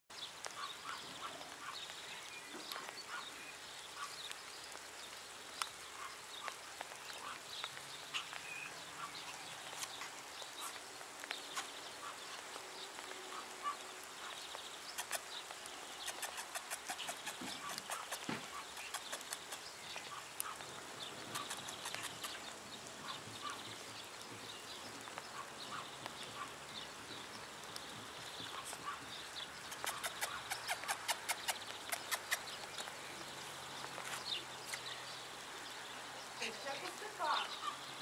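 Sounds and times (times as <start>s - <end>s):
quick clicks: 16.0s - 19.7s, 21.3s - 22.4s, 29.7s - 32.9s.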